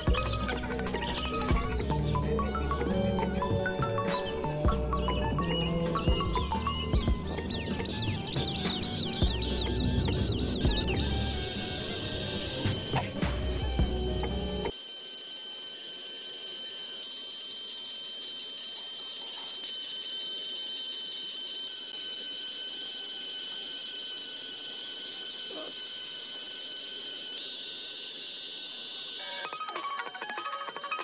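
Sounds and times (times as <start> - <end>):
steady tones: 0.0 - 29.4
small motor whining: 0.0 - 31.0.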